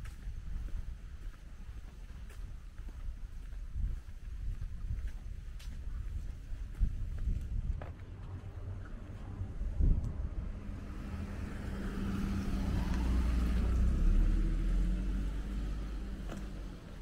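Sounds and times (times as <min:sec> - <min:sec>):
vehicle driving past: 0:08.0 - 0:17.0.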